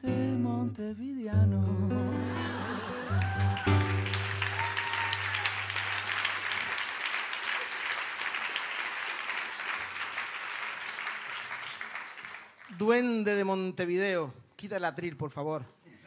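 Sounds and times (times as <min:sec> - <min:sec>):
acoustic guitar chord ringing: 0:01.4 - 0:05.8
audience applauding: 0:02.3 - 0:12.8.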